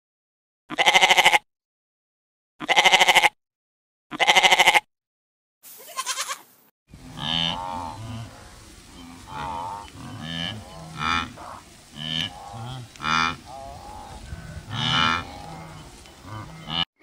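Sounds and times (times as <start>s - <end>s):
herd calling: 6.9s - 16.9s
wildebeest lowing calls: 6.9s - 16.9s.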